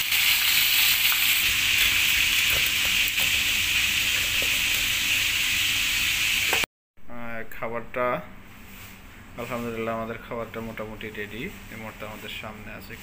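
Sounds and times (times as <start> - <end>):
fish sizzling in oil: 0.0 - 6.7.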